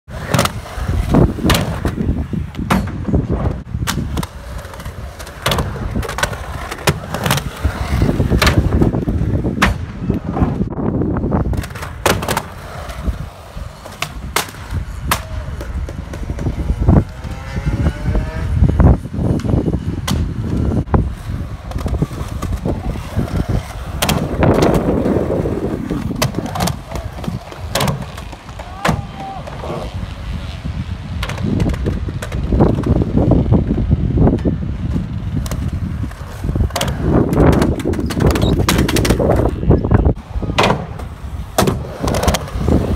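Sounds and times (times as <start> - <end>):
skateboard wheels rumbling: 0.1 - 42.9
skateboard clacking on concrete: 3.8 - 10.3, 11.4 - 17.4, 21.5 - 33.2, 34.3 - 42.9.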